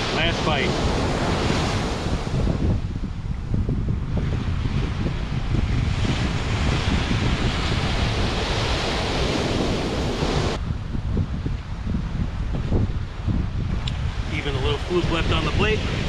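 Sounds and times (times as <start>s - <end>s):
surf breaking on beach: 0.0s - 2.9s, 4.1s - 10.6s, 14.0s - 16.0s
wind buffeting microphone: 0.0s - 16.0s.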